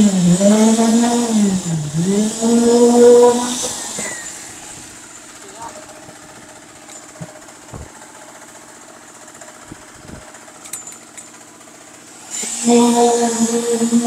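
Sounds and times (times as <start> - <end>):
loud steady machine tone: 0.0 - 14.0
small engine running: 0.0 - 14.0
soft thumps: 7.1 - 8.0.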